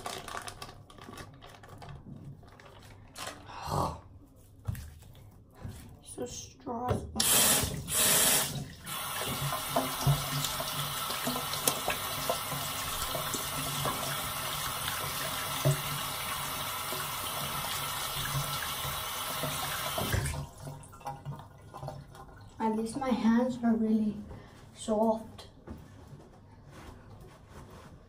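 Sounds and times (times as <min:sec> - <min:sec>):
tap water running into sink: 0:07.2 - 0:22.5.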